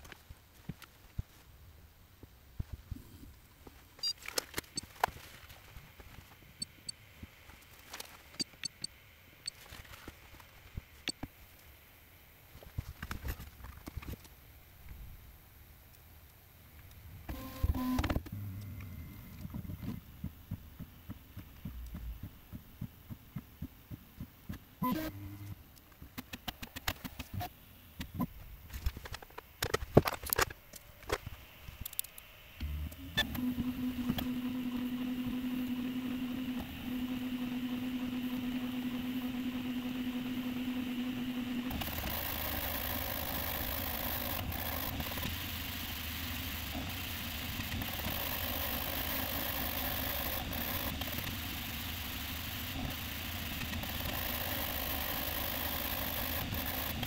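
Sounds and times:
steady low hum: 0.0s - 48.3s
stepper motors and fans whirring: 2.2s - 14.3s, 16.6s - 57.0s.

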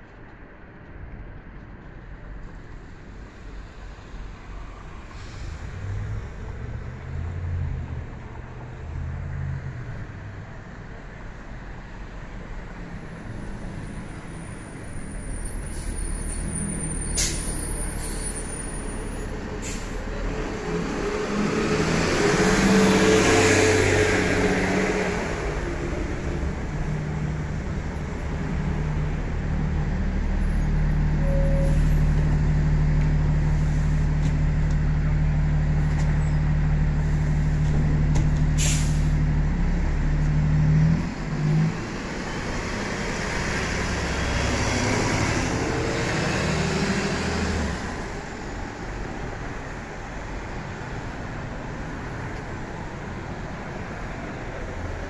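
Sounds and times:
bus engine: 0.0s - 55.0s
air-brake hisses: 15.6s - 18.5s, 19.6s - 20.1s, 38.6s - 39.2s.

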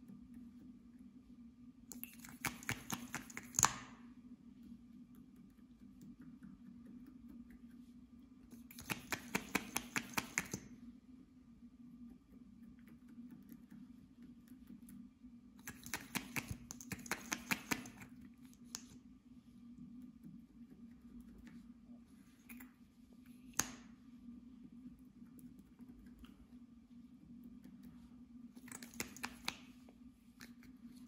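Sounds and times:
low steady hum: 0.0s - 31.0s
sticky slime clicks: 8.7s - 10.6s, 15.6s - 18.1s.

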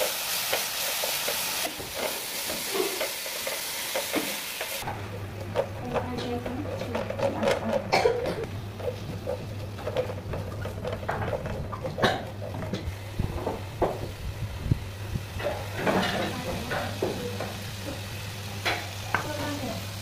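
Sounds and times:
utensils and bowl clicking: 0.0s - 12.9s.

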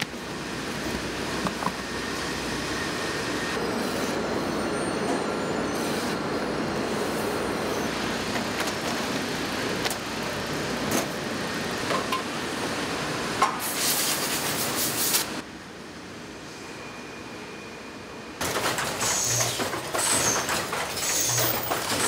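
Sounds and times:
factory machinery running: 0.0s - 22.0s.

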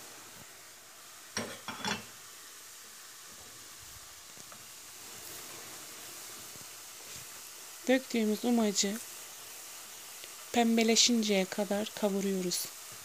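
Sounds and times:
food sizzling in oil: 0.0s - 13.0s
pot clattering: 1.4s - 2.2s.

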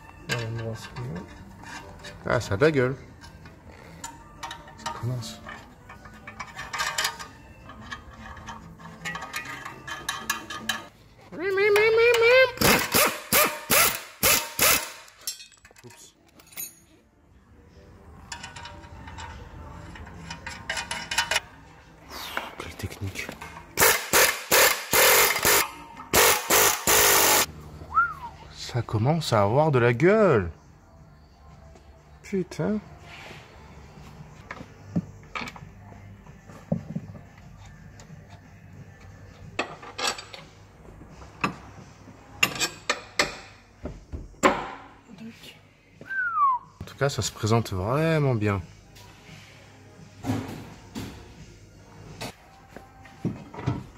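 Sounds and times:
metal parts clinking: 3.2s - 10.9s, 14.7s - 17.0s.

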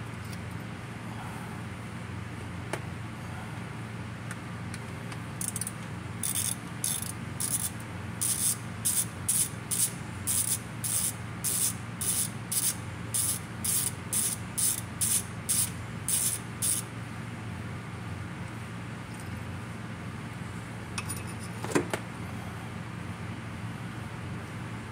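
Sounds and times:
ratchet wrench clicking: 5.4s - 16.9s.

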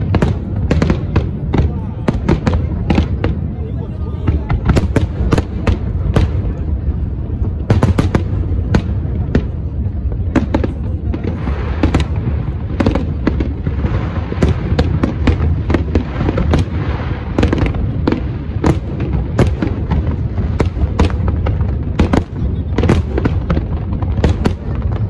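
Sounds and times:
fireworks bangs and pops: 0.0s - 25.0s
fireworks hissing crackle: 0.0s - 25.0s.

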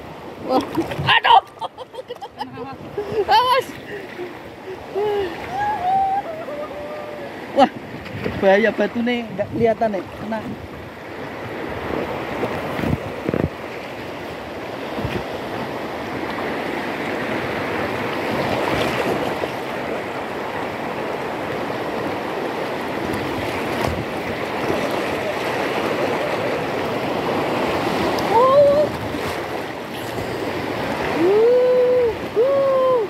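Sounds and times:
river rapids rushing: 14.3s - 33.0s.

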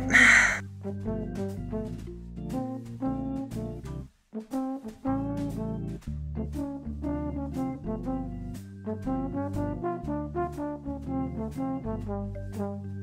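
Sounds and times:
brass melody: 4.4s - 5.8s, 6.7s - 13.0s.

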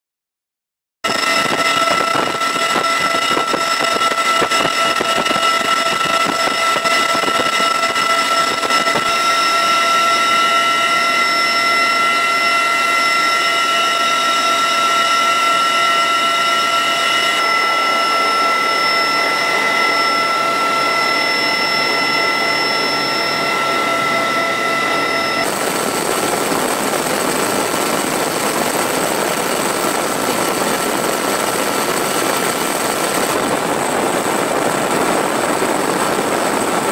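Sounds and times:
helicopter cabin roar: 1.0s - 36.9s
helicopter engines whining: 1.0s - 36.9s
wind and rotor wash: 1.0s - 36.9s.

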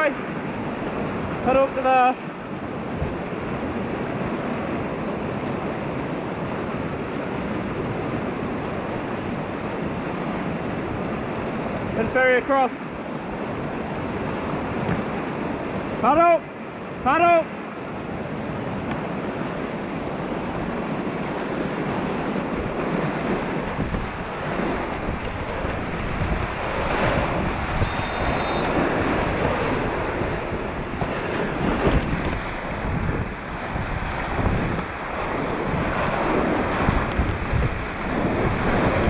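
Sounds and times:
waves breaking over kayak: 0.0s - 39.0s
whitewater rushing and splashing: 0.0s - 39.0s
wind buffeting microphone: 17.9s - 39.0s.

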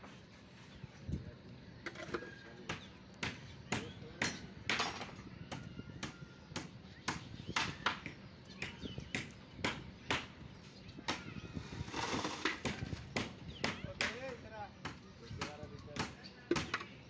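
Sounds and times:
faint voices: 0.1s - 6.9s, 10.5s - 17.0s.

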